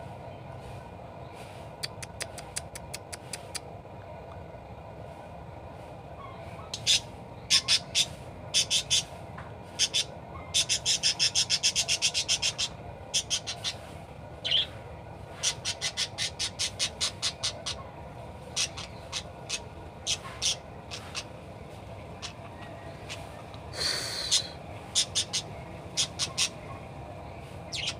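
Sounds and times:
budgerigar chirping: 6.7s - 9.1s, 9.8s - 13.8s, 14.4s - 14.7s, 15.4s - 17.8s, 18.5s - 21.3s, 23.0s - 26.7s.

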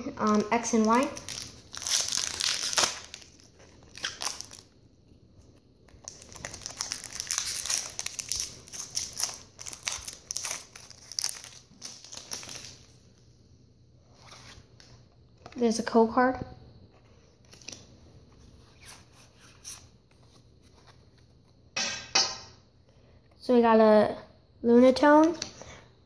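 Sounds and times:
foil wrapper tearing and rustling: 0.2s - 4.7s, 5.9s - 12.9s.

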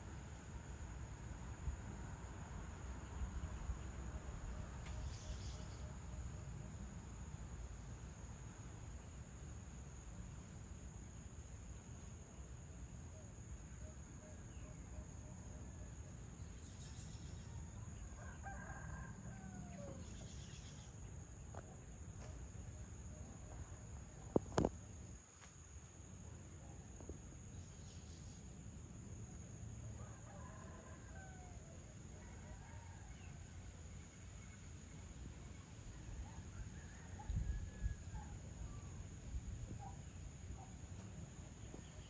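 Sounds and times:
roosters crowing: 17.9s - 20.2s, 30.0s - 33.6s.

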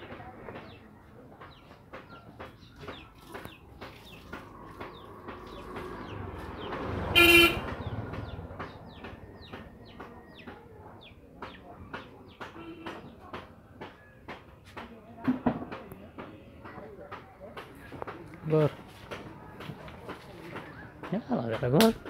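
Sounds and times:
vehicle passing rumble: 3.6s - 11.1s
vehicle horn honk: 7.1s - 7.7s.

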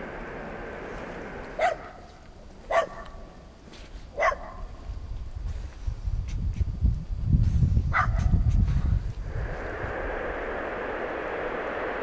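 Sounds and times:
low rumble: 0.0s - 2.3s, 8.4s - 12.0s
steady hiss: 0.0s - 12.0s
dog barking: 1.6s - 2.0s, 2.7s - 3.2s, 4.2s - 4.7s, 7.9s - 8.3s.

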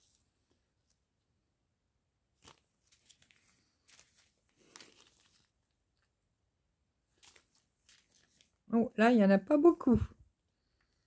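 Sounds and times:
plastic bags crinkling: 2.4s - 6.1s, 7.1s - 8.6s.

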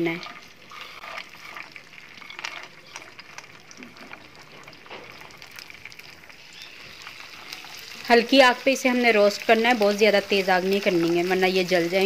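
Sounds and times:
faint oil sizzle: 0.0s - 12.0s.

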